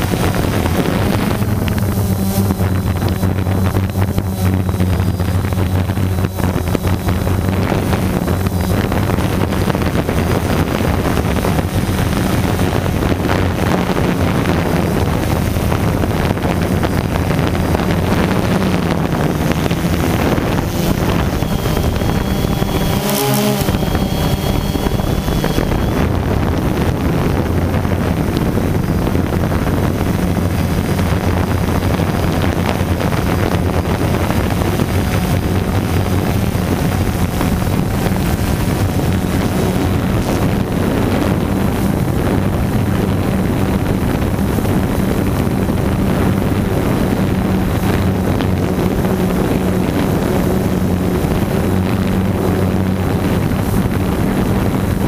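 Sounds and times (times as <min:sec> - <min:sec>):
drone propellers humming: 0:00.0 - 0:55.0
wind rushing over microphone: 0:00.0 - 0:55.0.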